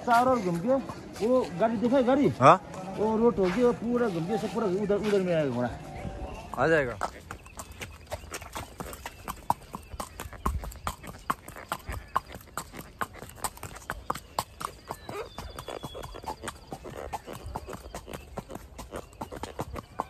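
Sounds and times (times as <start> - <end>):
horse hooves clip-clopping: 0.0 - 20.0.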